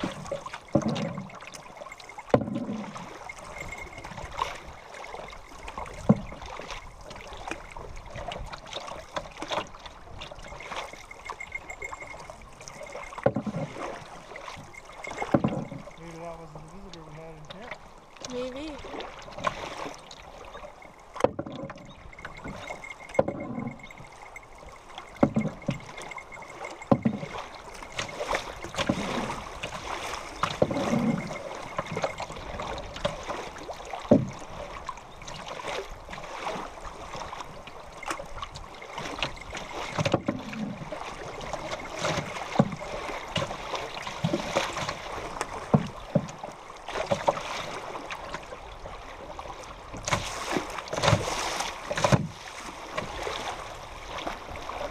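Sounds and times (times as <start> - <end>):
water slapping canoe hull: 0.0 - 54.9
river water rushing: 22.0 - 45.7.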